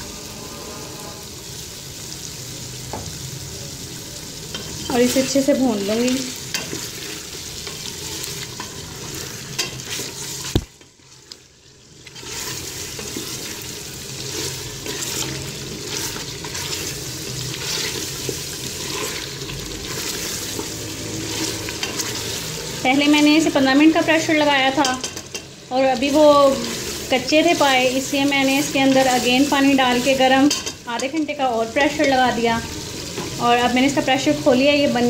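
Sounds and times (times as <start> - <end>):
meat sizzling in oil: 0.0 - 35.0
wooden spoon scraping pot: 12.0 - 22.4.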